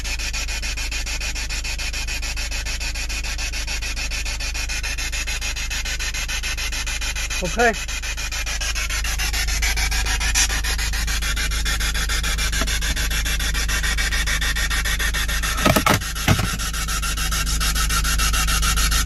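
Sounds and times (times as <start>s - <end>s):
vehicle cabin rumble and hiss: 8.8s - 18.4s
loud knocks: 15.5s - 16.7s.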